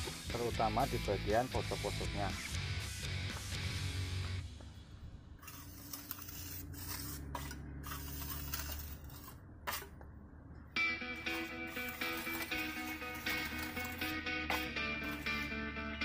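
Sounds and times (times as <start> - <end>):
guitar background music: 0.0 - 4.4, 10.8 - 16.0.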